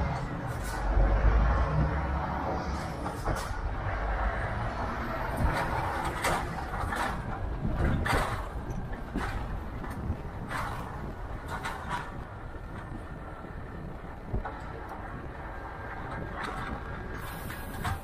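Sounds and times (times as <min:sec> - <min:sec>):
truck engine and road rumble: 0:00.0 - 0:18.0.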